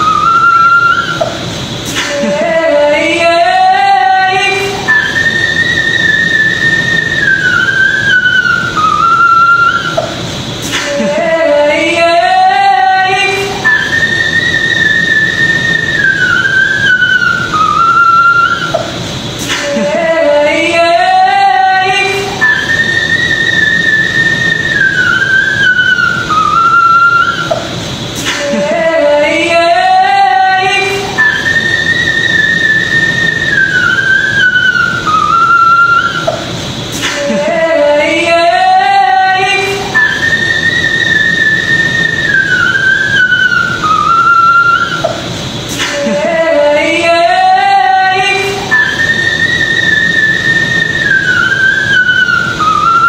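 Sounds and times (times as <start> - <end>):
man singing high whistle notes: 0.0 - 1.4, 2.0 - 53.0
man singing: 37.0 - 40.1, 45.8 - 48.9.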